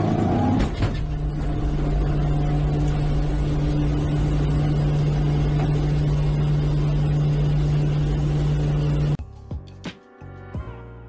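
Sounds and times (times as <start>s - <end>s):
turboprop engines droning: 0.0s - 9.2s.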